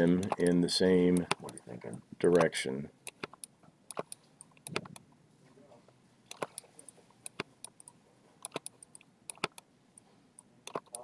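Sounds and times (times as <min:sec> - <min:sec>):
computer mouse and keyboard clicks: 0:00.1 - 0:01.6, 0:02.3 - 0:05.1, 0:06.3 - 0:09.7, 0:10.4 - 0:11.0.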